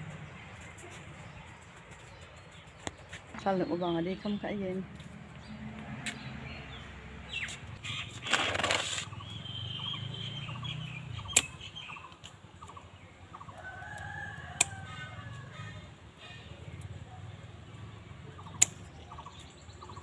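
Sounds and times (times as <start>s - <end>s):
pruning shears snipping: 7.5s - 9.2s, 11.2s - 12.4s, 14.6s - 14.9s, 18.4s - 19.0s.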